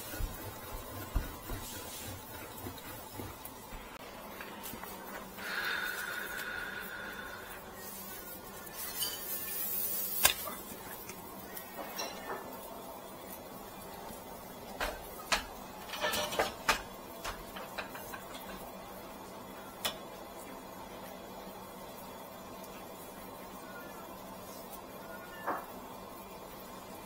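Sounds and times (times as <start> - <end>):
dry straw rustling: 7.7 - 12.1
straw snapping: 10.2 - 11.2.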